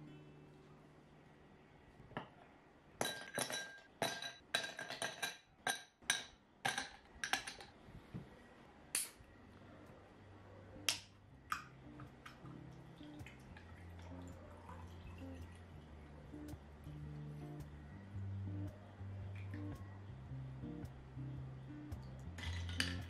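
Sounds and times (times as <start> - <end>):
ice cubes clinking in glass: 22.4 - 23.0.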